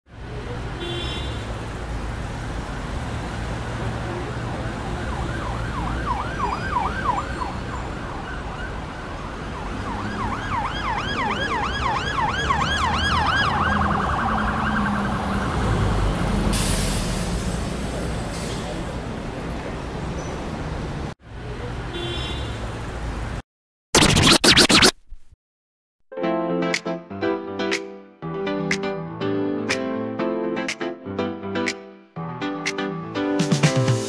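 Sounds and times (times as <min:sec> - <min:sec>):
street traffic rumble: 0:00.1 - 0:23.4
siren yelping: 0:05.0 - 0:08.4, 0:09.8 - 0:15.4.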